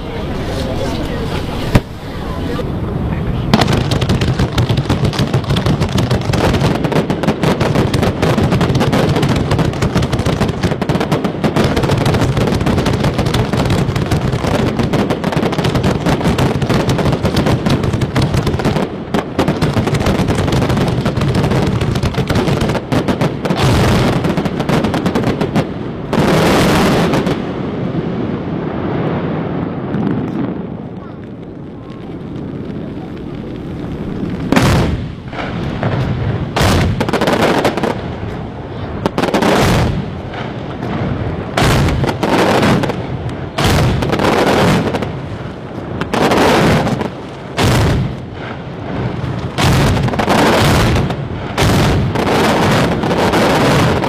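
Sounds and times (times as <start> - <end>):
loud rushing hisses: 0.0 - 4.0
fireworks crackling bangs: 0.0 - 54.0.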